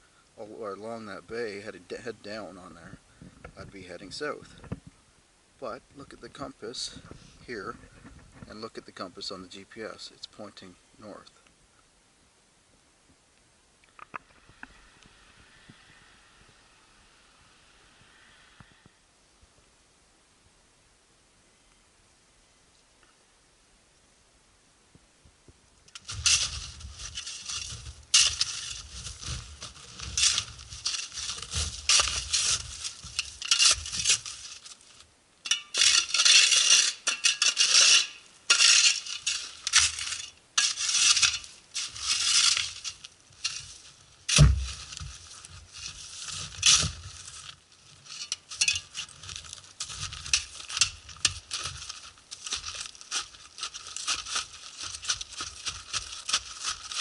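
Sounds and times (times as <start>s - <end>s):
snow shovel scraping: 26.0s - 57.0s
dull thump: 44.3s - 44.9s.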